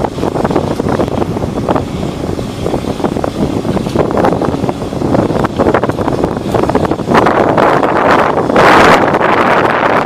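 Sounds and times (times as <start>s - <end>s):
ship engine and machinery: 0.0s - 10.0s
wind buffeting microphone: 0.0s - 10.0s.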